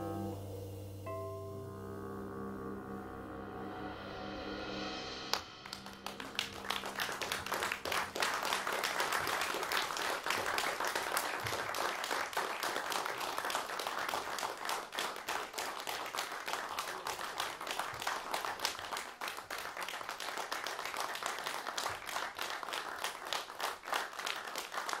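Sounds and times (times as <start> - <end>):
jazz trio sustained chord: 0.0 - 9.1
audience applauding: 5.3 - 25.0.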